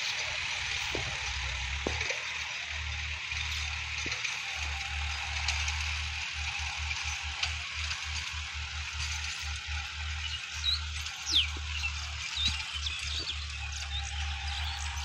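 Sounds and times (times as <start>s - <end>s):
distant tractor diesel engine: 0.0s - 15.0s
high bird chirps: 10.3s - 14.9s.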